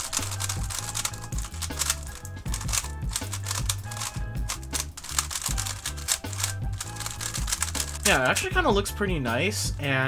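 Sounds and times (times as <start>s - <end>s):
puzzle cube clicking: 0.0s - 8.2s
background music with bass line: 0.0s - 10.0s.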